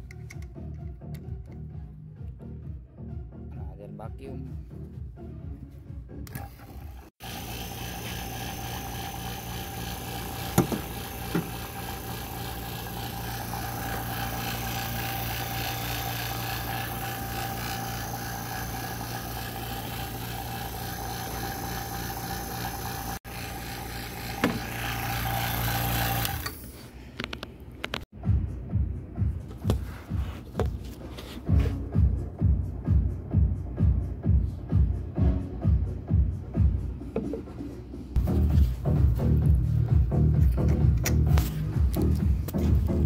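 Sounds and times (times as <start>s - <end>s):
vacuum pump humming: 6.3s - 26.9s
knocks and handling noises: 29.4s - 31.8s, 37.1s - 37.7s.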